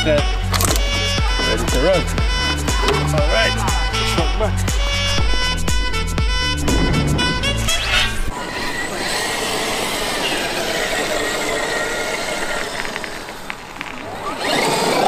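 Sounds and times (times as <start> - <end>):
background music: 0.0 - 8.3
electric motor whine: 0.0 - 15.0
tire and ground noise: 0.0 - 15.0.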